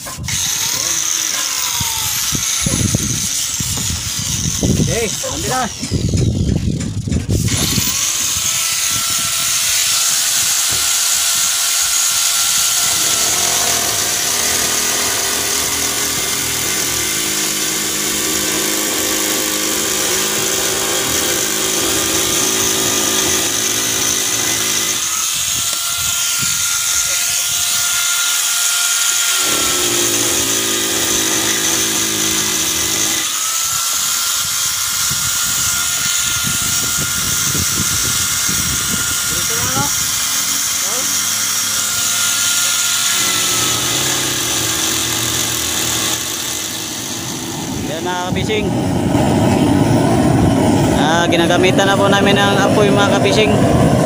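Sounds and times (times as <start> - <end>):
angle grinder motor whining: 0.0 - 53.6
grinder sanding wooden deck: 0.0 - 54.0.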